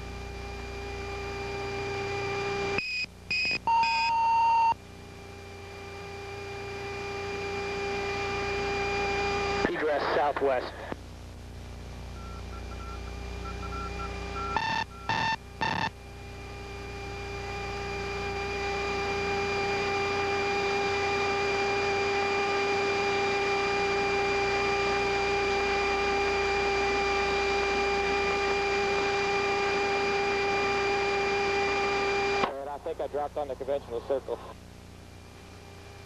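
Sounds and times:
steady electrical hum: 0.0s - 36.0s
faint beeps: 12.2s - 15.4s.

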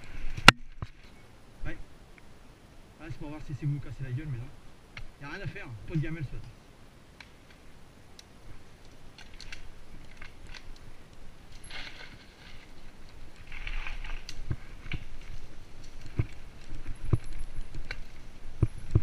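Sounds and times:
bike tyres crunching leaves and twigs: 7.1s - 19.0s.

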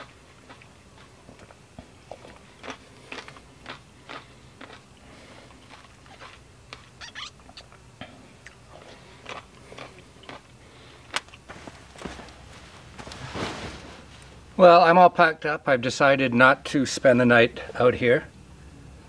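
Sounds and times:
person chewing: 0.0s - 11.4s.

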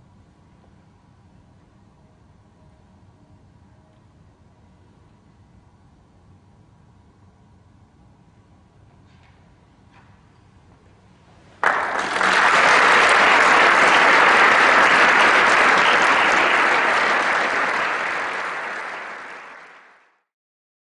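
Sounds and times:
audience applause: 11.6s - 20.2s.

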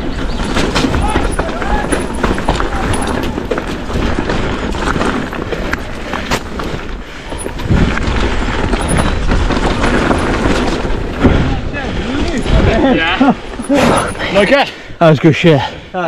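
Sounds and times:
bike knocking on stones: 0.0s - 12.8s
wind rumble on microphone: 0.0s - 13.0s
bike tyres crunching over shale: 0.0s - 14.6s.

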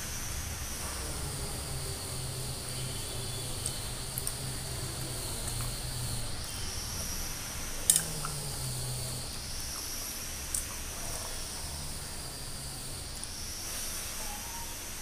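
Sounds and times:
insect chorus: 0.0s - 15.0s
chewing: 0.9s - 7.2s, 7.8s - 9.9s.

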